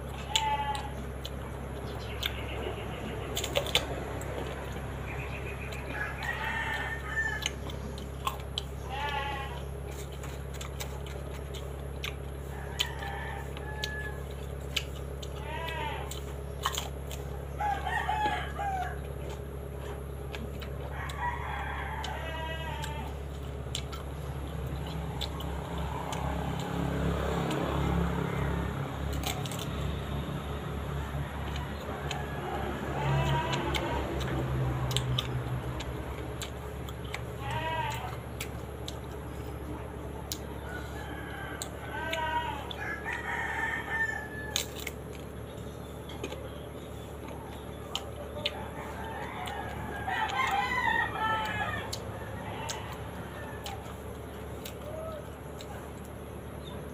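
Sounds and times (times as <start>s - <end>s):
chewing crunches: 0.0s - 56.9s
engine humming: 0.0s - 56.9s
rooster crowing: 4.1s - 7.8s, 12.2s - 14.6s, 17.2s - 23.2s, 24.8s - 38.2s, 40.3s - 46.1s, 48.4s - 55.9s.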